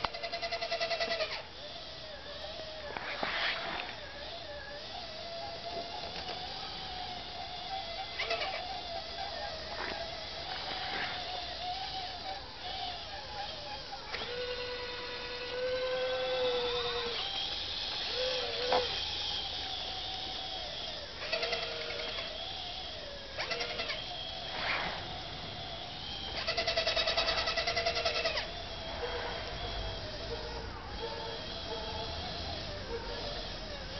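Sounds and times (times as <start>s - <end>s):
model bulldozer drive whine: 0.0s - 33.9s
short fast-pulsing sounds: 7.4s - 33.9s.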